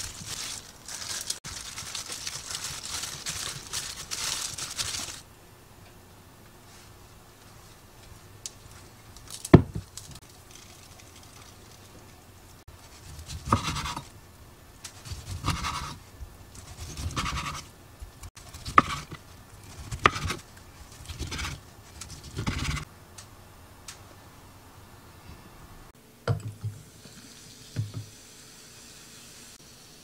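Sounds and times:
knife slicing food: 12.9s - 14.1s, 14.9s - 16.0s, 16.6s - 17.7s, 18.5s - 22.8s.

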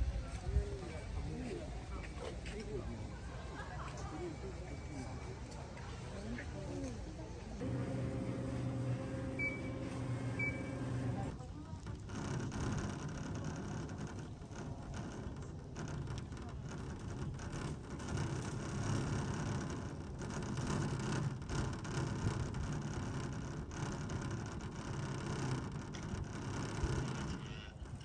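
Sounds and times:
chairlift cable rumble: 7.6s - 28.0s.

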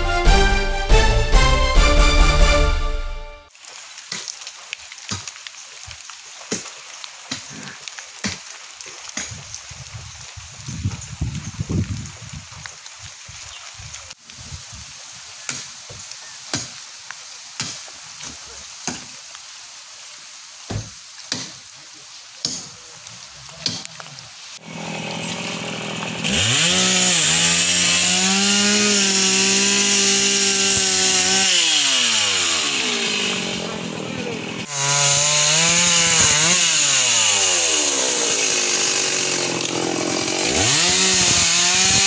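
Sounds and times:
chainsaw revving: 24.6s - 42.0s.

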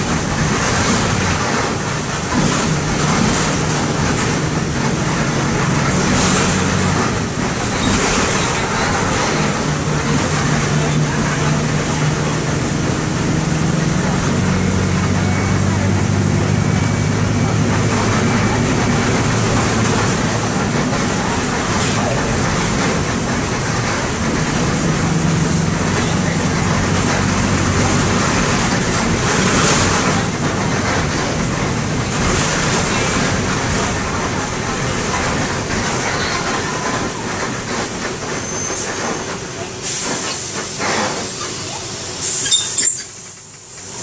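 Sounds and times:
low steady engine drone: 0.0s - 37.8s
continuous rumbling noise: 0.0s - 44.0s.

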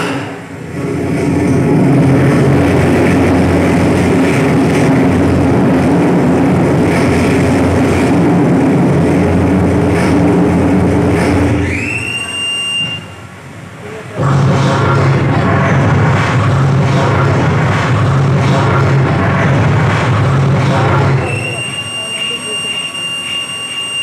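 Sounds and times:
loud mechanical rumble: 0.0s - 24.0s
rising whistle: 11.6s - 13.3s, 21.2s - 24.0s.

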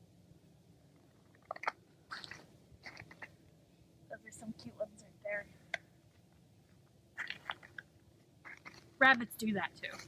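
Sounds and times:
faint low rumble: 0.0s - 10.0s.

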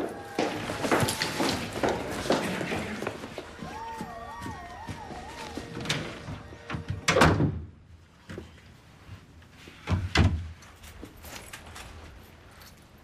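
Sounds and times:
door slamming: 5.7s - 7.7s.

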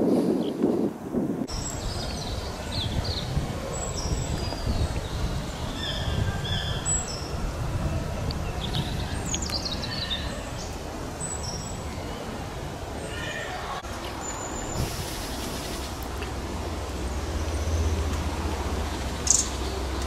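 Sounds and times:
small birds chirping: 1.5s - 12.4s, 13.0s - 16.3s, 18.8s - 20.0s.

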